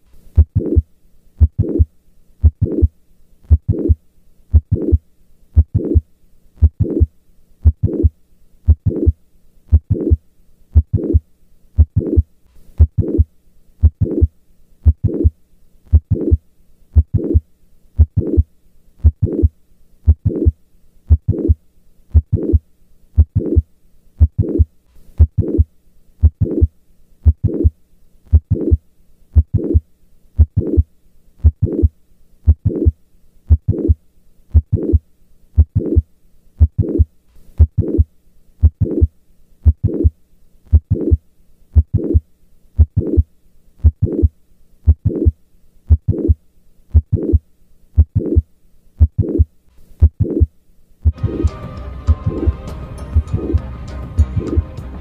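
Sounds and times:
heartbeat through stethoscope: 0.4s - 0.8s, 1.4s - 2.9s, 3.5s - 5.0s, 5.6s - 6.0s, 6.6s - 8.1s, 8.7s - 10.2s, 10.8s - 11.2s, 11.8s - 15.3s, 15.9s - 16.4s, 17.0s - 17.4s, 18.0s - 18.4s, 19.0s - 19.5s, 20.1s - 22.6s, 23.2s - 23.6s, 24.2s - 27.7s, 28.3s - 28.8s, 29.4s - 29.8s, 30.4s - 30.8s, 31.4s - 31.9s, 32.5s - 35.0s, 35.6s - 36.0s, 36.6s - 40.1s, 40.7s - 41.2s, 41.8s - 42.2s, 42.8s - 43.2s, 43.8s - 44.3s, 44.9s - 47.4s, 48.0s - 48.4s, 49.0s - 51.5s, 53.2s - 53.6s, 54.4s - 54.6s.

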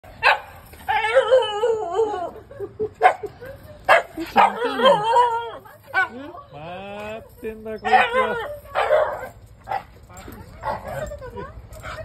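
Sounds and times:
dog whining howl: 0.9s - 2.4s
dog yipping: 7.8s - 9.9s.

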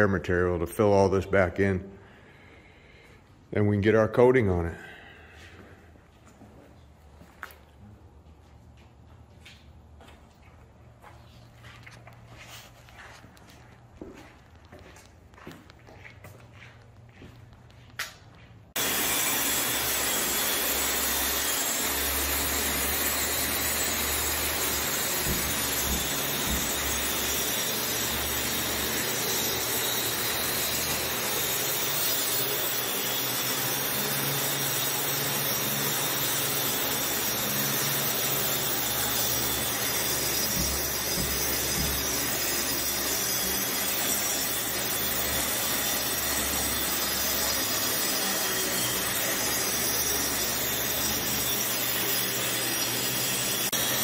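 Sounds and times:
angle grinder grinding concrete: 18.8s - 54.0s.

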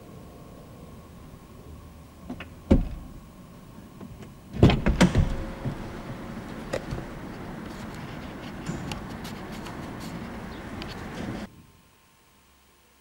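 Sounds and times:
car wash thump: 2.3s - 3.2s, 4.6s - 7.4s
knocks and clunks: 2.3s - 3.2s, 4.0s - 7.8s
car wash spray hiss: 4.8s - 11.5s.

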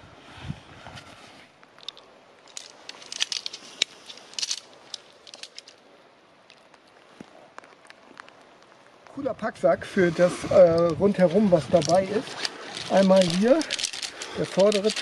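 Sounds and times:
nylon tent pack rustling: 10.1s - 15.0s.

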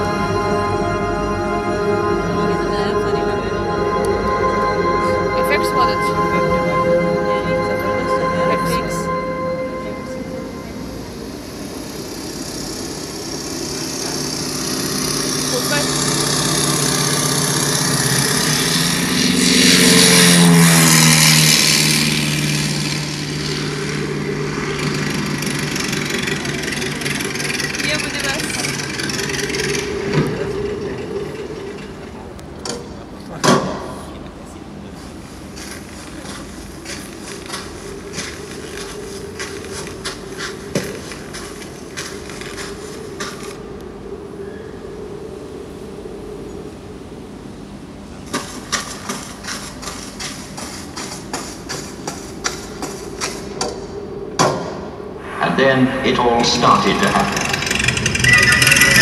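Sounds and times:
falling tone: 0.0s - 34.9s, 53.4s - 59.0s
low droning soundscape: 0.0s - 59.0s
steady low hum: 0.0s - 59.0s.

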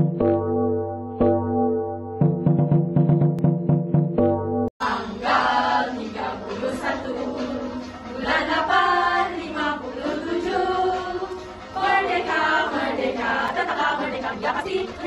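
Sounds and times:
choir singing with music: 4.8s - 15.0s.

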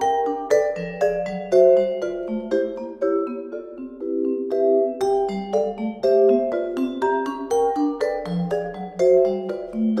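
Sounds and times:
marimba played with mallets: 0.0s - 10.0s.

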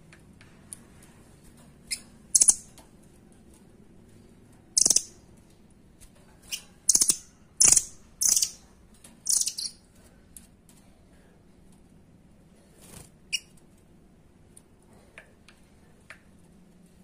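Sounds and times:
bird giving trilled calls: 2.3s - 2.6s, 4.8s - 5.2s, 6.9s - 8.6s, 9.3s - 9.8s.

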